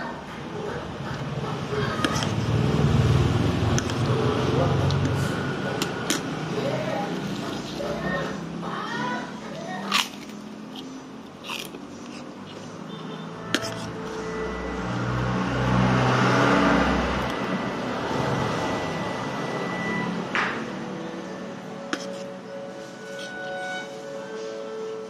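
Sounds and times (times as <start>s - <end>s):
vehicle passing: 0.0s - 25.0s
crunchy cracker bite: 9.8s - 10.4s.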